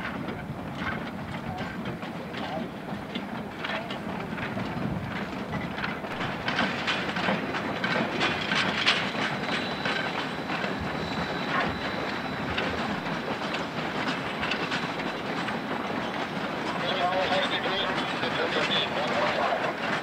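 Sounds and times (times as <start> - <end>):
train wheels clattering over rail joints: 0.0 - 20.0
high squeal from train wheels: 5.6 - 19.8.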